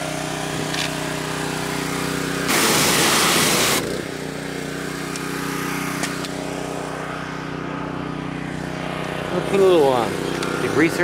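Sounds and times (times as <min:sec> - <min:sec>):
engine running: 0:00.0 - 0:11.0
loud hiss: 0:02.5 - 0:03.8.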